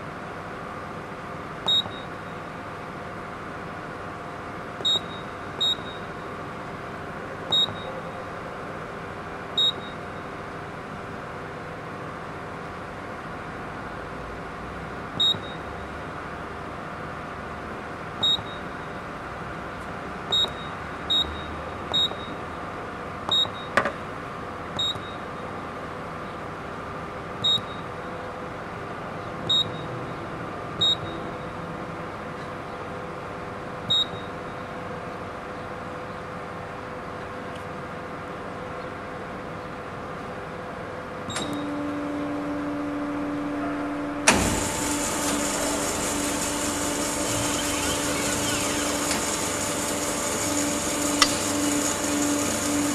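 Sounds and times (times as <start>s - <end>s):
short high keypad beeps: 1.7s - 2.1s, 4.8s - 6.1s, 7.5s - 7.9s, 15.2s - 15.7s, 18.2s - 18.7s, 20.3s - 22.4s, 23.3s - 23.8s, 24.8s - 25.2s, 27.4s - 27.9s, 29.5s - 29.8s
steady machine hum: 37.8s - 52.9s
band saw running: 44.3s - 52.9s.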